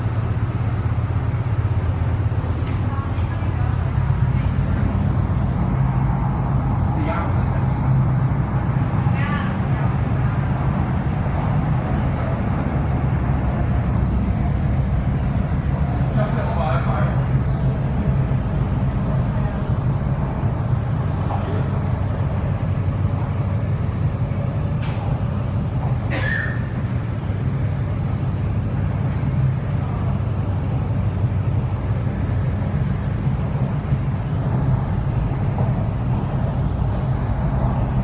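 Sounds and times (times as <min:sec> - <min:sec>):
train wheels rumbling on rail: 0:00.0 - 0:38.0
brief high squeak: 0:26.1 - 0:26.8.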